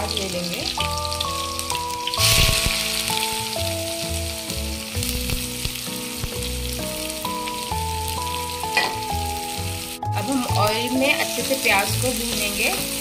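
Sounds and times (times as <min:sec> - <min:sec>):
background music melody: 0:00.0 - 0:13.0
onions sizzling in hot oil: 0:00.0 - 0:13.0.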